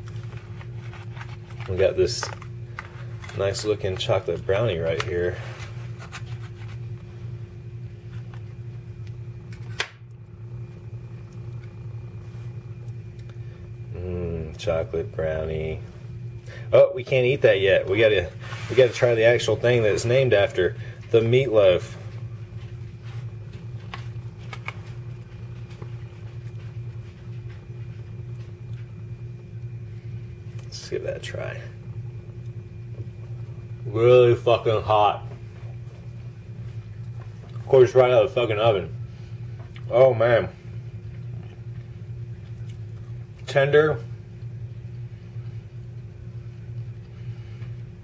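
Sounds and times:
low hum: 0.0s - 48.0s.

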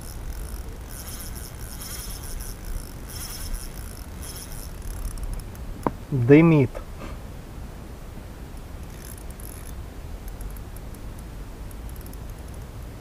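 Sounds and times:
fishing reel drag buzzing: 0.0s - 5.6s, 8.8s - 10.6s, 11.7s - 12.6s.

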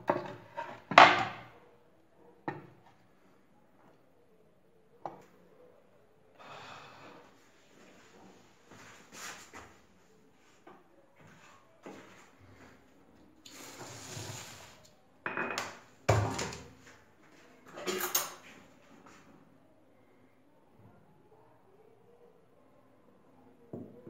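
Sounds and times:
dishes and cutlery clattering: 17.7s - 18.5s.

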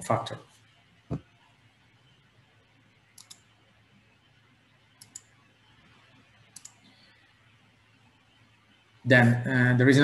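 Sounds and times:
computer mouse clicks: 3.2s - 3.5s, 5.0s - 5.4s, 6.4s - 7.1s.

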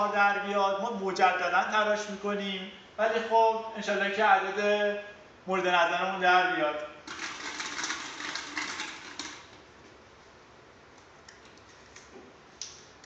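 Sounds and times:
plastic balls clattering in glass bowl: 7.1s - 9.5s.

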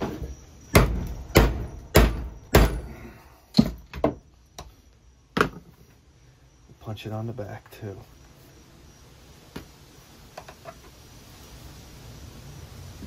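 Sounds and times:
hammer striking steel punch: 0.7s - 3.0s.

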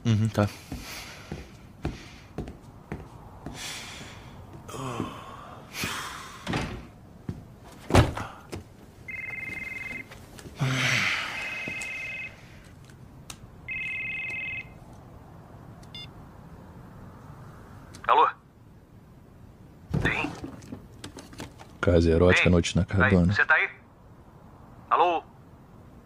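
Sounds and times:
phone ringing two-tone: 9.1s - 10.1s, 11.4s - 12.4s, 13.7s - 14.8s.

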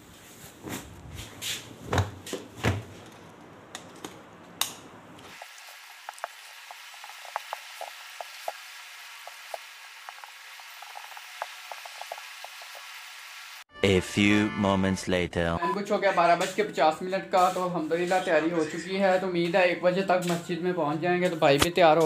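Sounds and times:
electric iron hissing and crackling: 5.2s - 13.6s.

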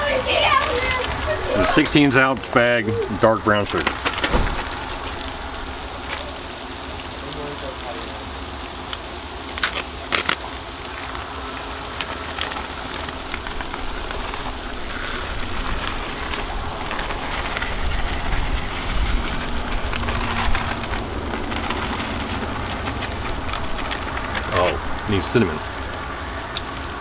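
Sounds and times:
food sizzling on a griddle: 0.0s - 20.8s
wind rumble on microphone: 11.1s - 27.0s.

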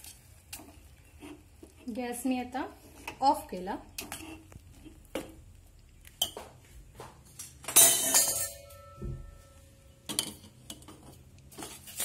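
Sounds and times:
metal spoon clinking in pot: 7.7s - 11.0s
metal ringing tone: 7.8s - 10.0s.

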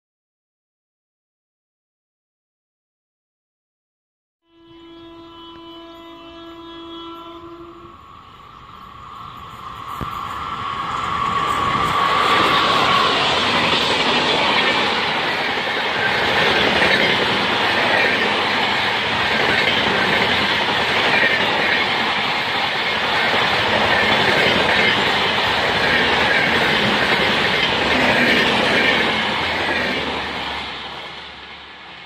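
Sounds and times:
train wheels rushing on rails: 7.6s - 32.0s.

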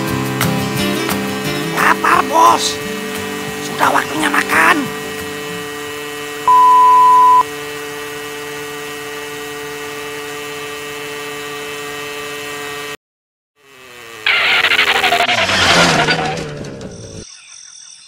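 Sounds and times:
cartoon motorcycle engine drone: 0.0s - 13.0s, 13.6s - 17.4s
loud pure beep tone: 6.5s - 7.5s.

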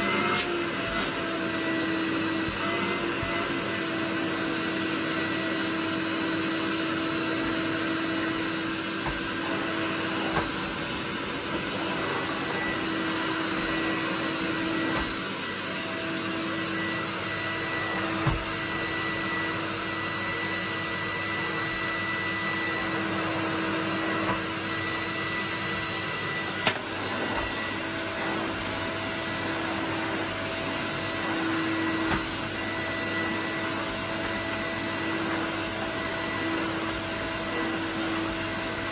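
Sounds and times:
vacuum cleaner running: 0.0s - 38.9s.

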